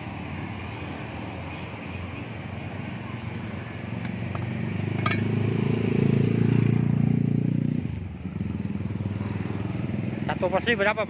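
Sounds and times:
motorcycle engine running: 4.1 - 10.8
metallic clink: 4.9 - 5.3.

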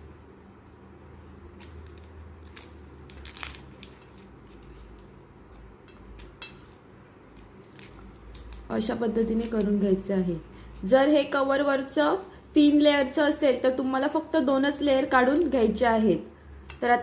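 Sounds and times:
low steady hum: 0.0 - 17.0
knife peeling dry stalk layers: 1.5 - 9.9, 10.6 - 12.8.

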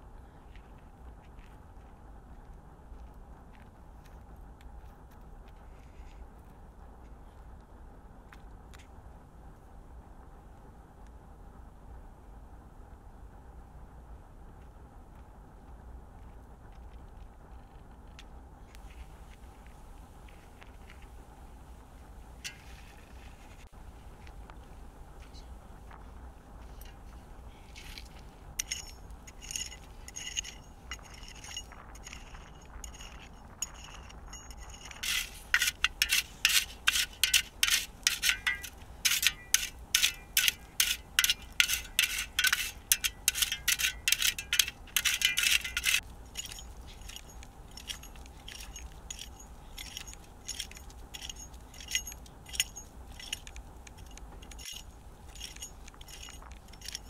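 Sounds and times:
metal hand tool striking: 28.6 - 57.0.

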